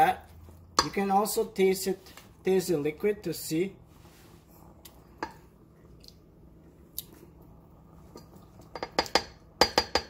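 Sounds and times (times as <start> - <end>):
plastic spoon knocking on a pot: 8.7 - 10.0.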